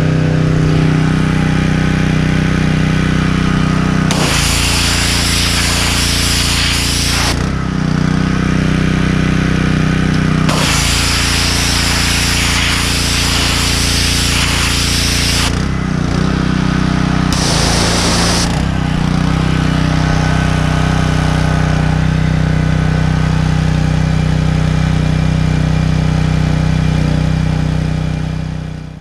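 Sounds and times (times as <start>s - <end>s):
steady motor hum: 0.0s - 29.0s
pressure washer jet hissing: 4.1s - 7.4s, 10.5s - 15.6s, 17.3s - 18.8s.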